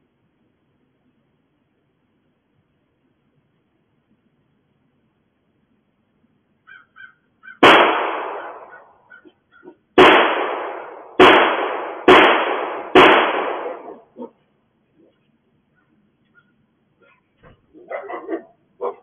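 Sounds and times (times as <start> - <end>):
gunshots echoing: 7.6 - 9.0, 10.0 - 14.0.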